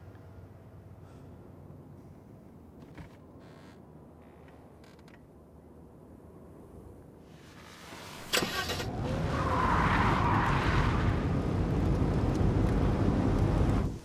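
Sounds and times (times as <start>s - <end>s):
rush of tyre noise: 7.3s - 14.0s
car engine rumble: 7.8s - 14.0s.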